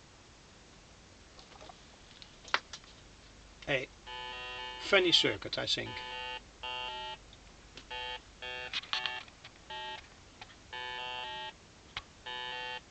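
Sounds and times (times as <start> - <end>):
buzzy square-wave tone bursts: 3.8 - 7.2, 7.9 - 10.0, 10.7 - 11.6, 12.2 - 12.9.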